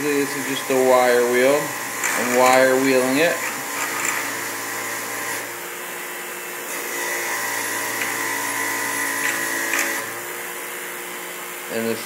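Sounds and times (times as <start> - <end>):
bench grinder running: 0.0 - 11.2.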